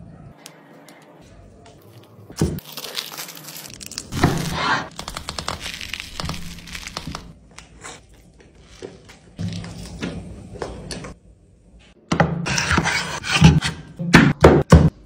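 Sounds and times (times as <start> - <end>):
crisp flatbread wrap tearing: 2.6 - 4.2, 5.0 - 7.4.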